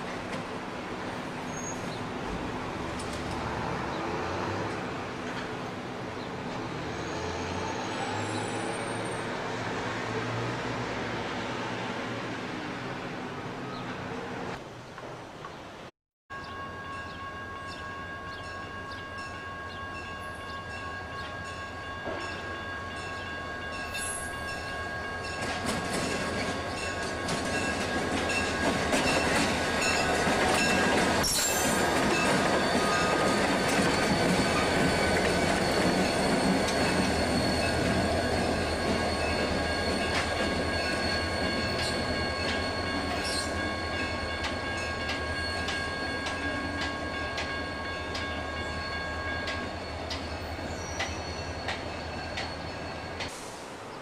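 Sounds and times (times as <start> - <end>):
diesel locomotives rumbling past: 0.0 - 14.8, 16.3 - 54.0
high squeal: 29.6 - 53.7.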